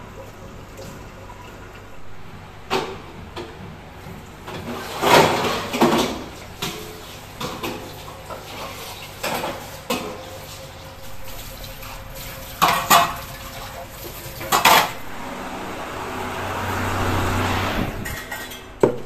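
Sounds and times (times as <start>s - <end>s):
steel dishes clanking and scraping: 18.0s - 19.0s.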